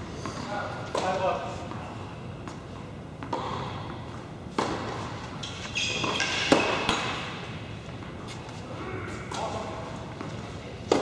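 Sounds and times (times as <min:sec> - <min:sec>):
tennis ball bouncing on hard court: 0:03.2 - 0:08.2, 0:10.1 - 0:11.0
racket hitting tennis ball: 0:03.2 - 0:08.3, 0:10.2 - 0:11.0.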